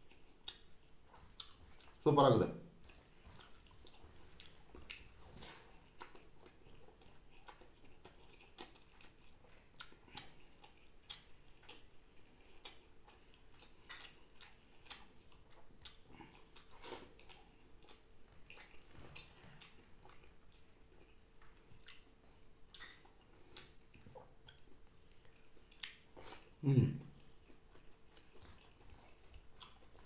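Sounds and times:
wet smacks of eating by hand: 0.1s - 2.0s, 12.6s - 26.5s.

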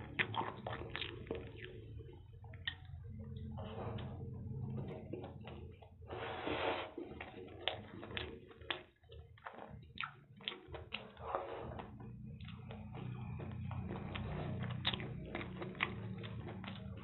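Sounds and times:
slurp: 0.0s - 17.0s
wet chewing and lip-smacking: 0.0s - 17.0s.

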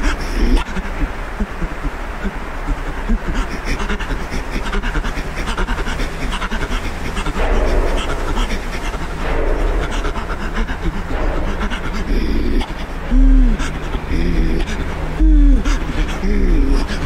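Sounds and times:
man panting heavily: 0.0s - 17.0s
man rasping vocal sounds: 0.0s - 17.0s.

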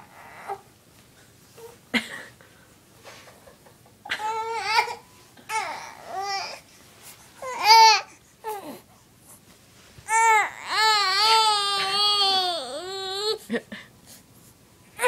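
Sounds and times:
baby crying: 4.2s - 6.6s, 10.1s - 13.4s.

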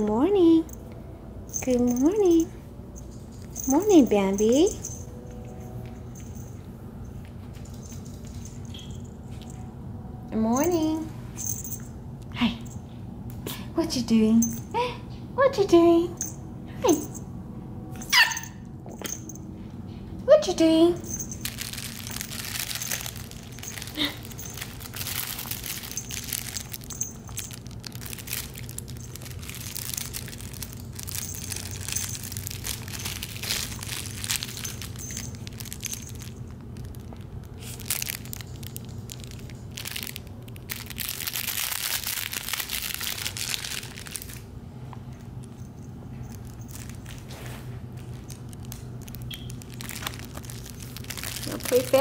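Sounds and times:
plush toy crinkling and rustling: 21.0s - 44.5s, 45.1s - 52.0s.

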